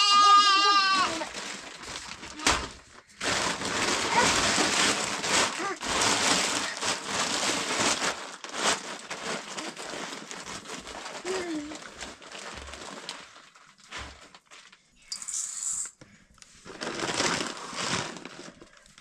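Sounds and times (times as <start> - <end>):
sheep bleating: 0.0 - 1.3
rustling and crackling: 0.5 - 14.9, 16.4 - 19.0.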